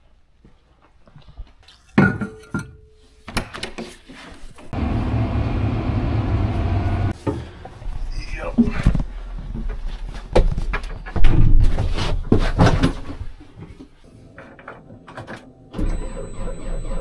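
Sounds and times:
engine rumble with high whine: 4.8s - 7.2s.

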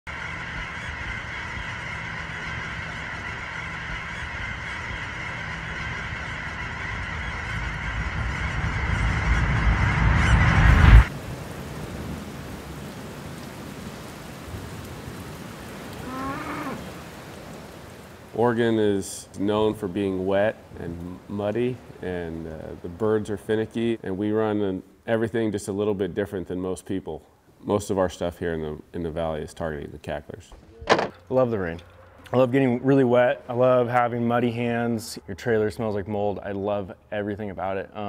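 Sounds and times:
geese cackling: 0.1s - 11.1s, 13.9s - 24.6s
low rumble: 0.2s - 12.2s.

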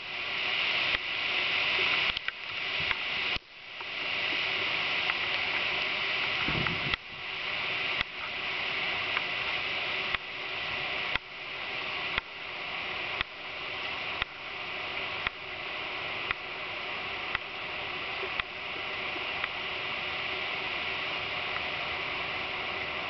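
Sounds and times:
rain and wind hiss: 0.0s - 23.0s.

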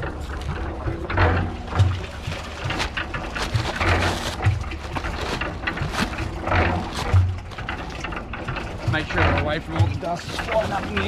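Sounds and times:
cement mixer humming: 0.0s - 11.0s
paper bag rustling and scraping: 1.8s - 8.0s, 10.2s - 11.0s.

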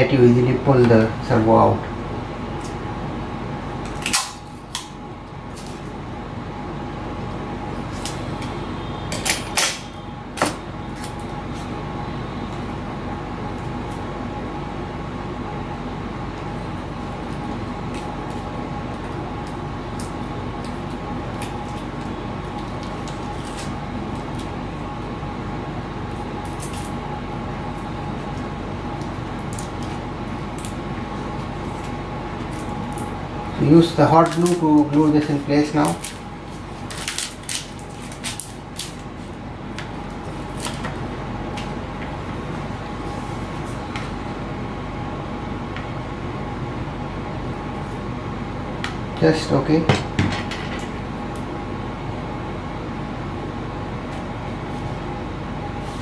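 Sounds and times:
fan humming: 0.0s - 56.0s
tape clicks and crackles: 34.2s - 42.1s.

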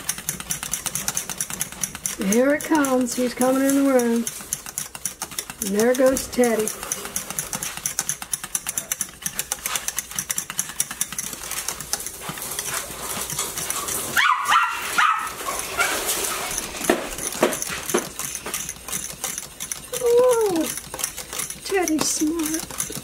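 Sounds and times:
whisk clicking against saucepan: 0.0s - 23.0s
dog yapping: 14.1s - 16.1s.

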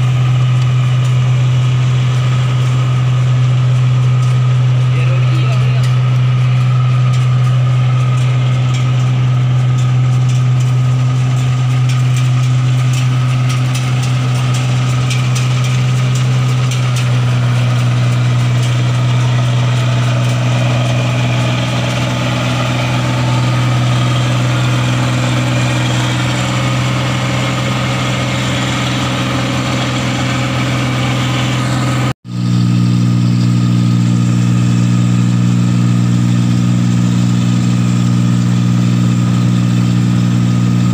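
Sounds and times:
combine harvester engine drone: 0.0s - 40.9s.

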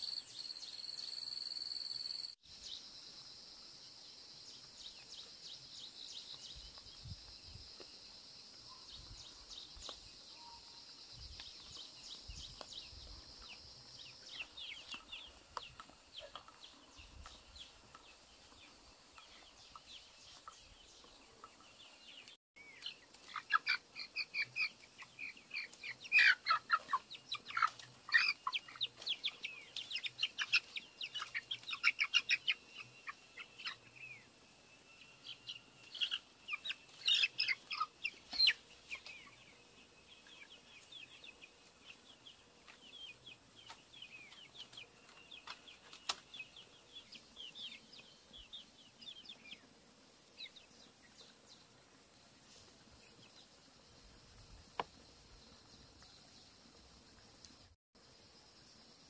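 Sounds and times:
chicks cheeping and clucking: 11.3s - 34.3s, 35.2s - 49.7s.

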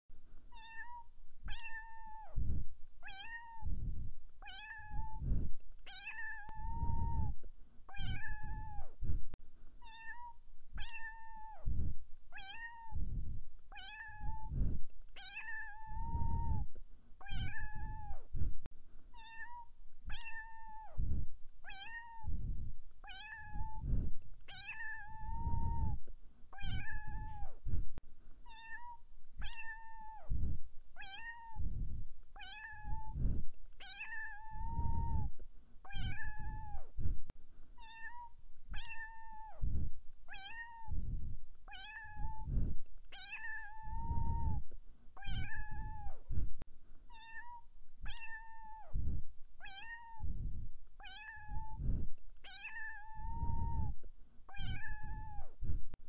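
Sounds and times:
kitten meowing: 0.5s - 2.4s, 3.0s - 3.7s, 4.4s - 5.2s, 5.9s - 9.0s, 9.8s - 11.6s, 12.3s - 13.0s, 13.7s - 14.5s, 15.2s - 16.6s, 17.2s - 18.3s, 19.1s - 21.0s, 21.6s - 22.3s, 23.0s - 23.8s, 24.5s - 26.0s, 26.6s - 27.6s, 28.4s - 30.3s, 31.0s - 31.6s, 32.4s - 33.2s, 33.8s - 35.3s, 35.9s - 36.9s, 37.8s - 39.6s, 40.3s - 41.0s, 41.7s - 42.5s, 43.1s - 44.6s, 45.2s - 46.2s, 47.1s - 48.9s, 49.6s - 50.3s, 51.0s - 51.8s, 52.4s - 55.6s.

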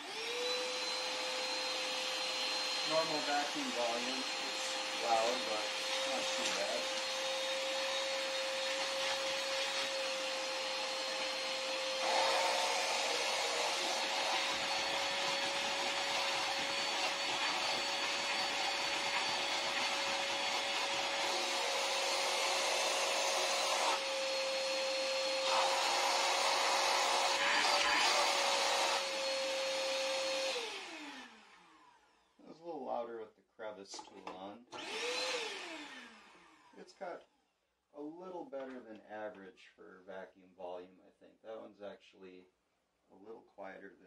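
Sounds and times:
shop vacuum motor whine: 0.0s - 32.4s, 34.7s - 36.8s.

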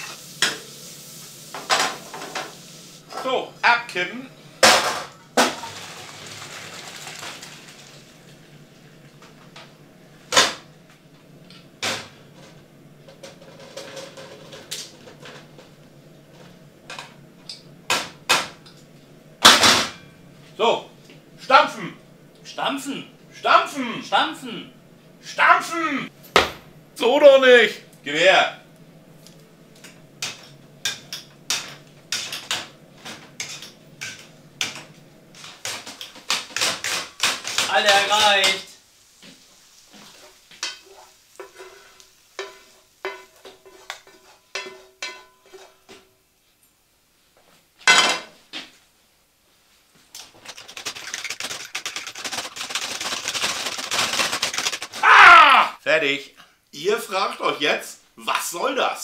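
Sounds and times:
water running into a colander: 0.0s - 3.0s, 5.4s - 8.2s.

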